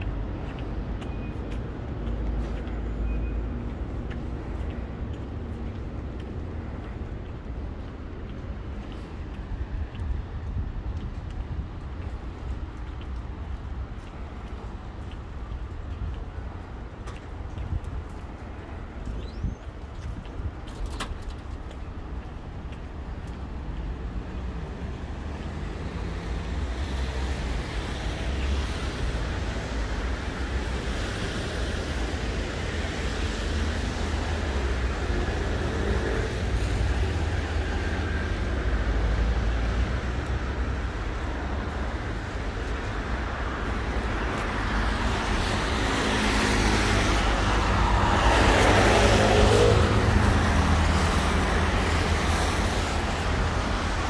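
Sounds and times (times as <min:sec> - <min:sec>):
rumble of car traffic: 0:00.0 - 0:54.0.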